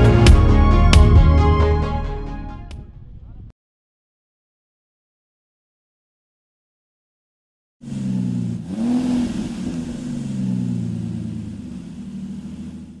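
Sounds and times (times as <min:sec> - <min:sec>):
car engine starting and revving: 0:07.8 - 0:13.0.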